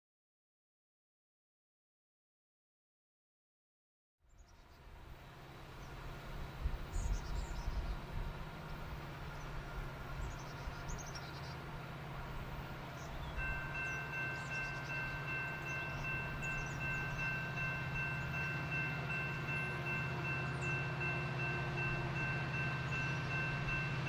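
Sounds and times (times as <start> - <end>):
distant locomotive rumble: 4.3 - 24.0
small birds chirping: 10.2 - 11.7, 12.8 - 18.6.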